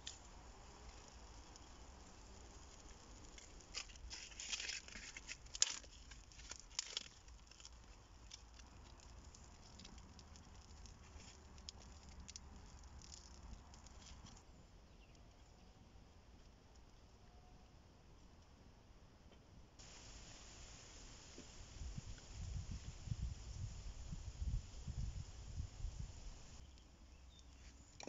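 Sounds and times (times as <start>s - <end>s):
twig fire crackling: 0.0s - 15.2s, 19.8s - 26.9s.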